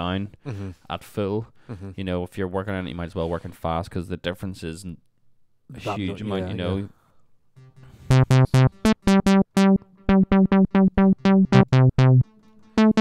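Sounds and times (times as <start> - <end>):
synthesizer staccato riff: 8.1 - 13.0.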